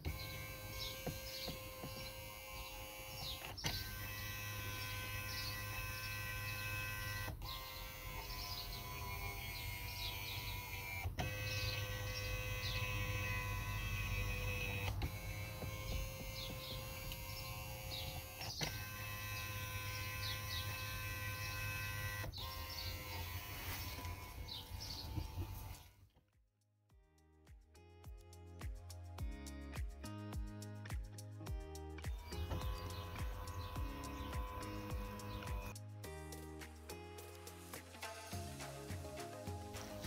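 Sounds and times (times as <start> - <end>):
massage seat motor whine: 0.0 - 25.9, 32.1 - 35.8
seat mechanism clicking: 9.6 - 25.8.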